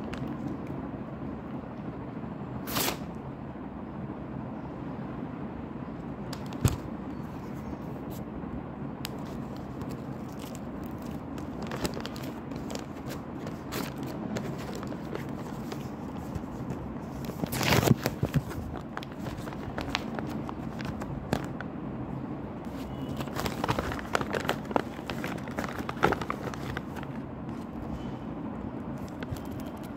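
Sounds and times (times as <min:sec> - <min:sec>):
low background noise: 0:00.0 - 0:29.9
plastic packaging crinkling: 0:09.1 - 0:21.6, 0:22.7 - 0:27.7.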